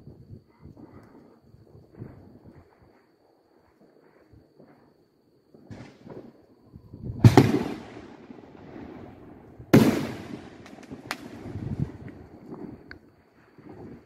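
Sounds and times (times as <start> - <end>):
loud firework booms echoing: 7.0 - 12.8
small firework pops: 7.2 - 8.2, 9.7 - 14.0.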